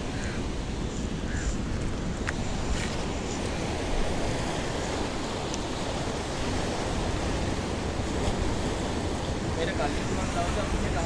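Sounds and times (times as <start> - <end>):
ocean surf breaking on rocks: 0.0 - 11.0
wind rumbling on microphone: 0.0 - 11.0.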